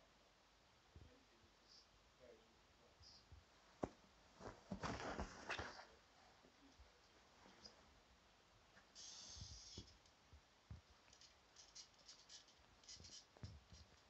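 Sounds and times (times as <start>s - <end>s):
soft thumps: 3.8s - 5.9s.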